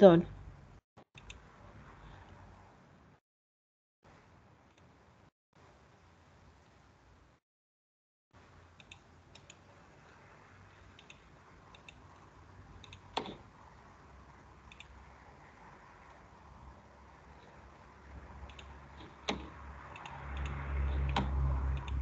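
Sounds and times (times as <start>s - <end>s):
computer mouse clicks: 1.2s - 1.4s, 8.8s - 9.6s, 10.9s - 13.4s, 14.7s - 15.0s, 18.4s - 22.0s.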